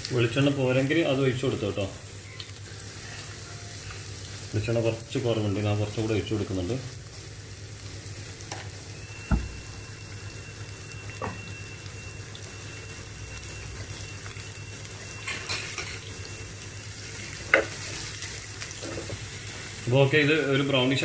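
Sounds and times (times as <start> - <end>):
shallots and garlic sizzling: 0.0 - 21.0
crackles: 1.8 - 21.0
thin steady high tone: 8.2 - 21.0
thump: 9.3 - 9.8.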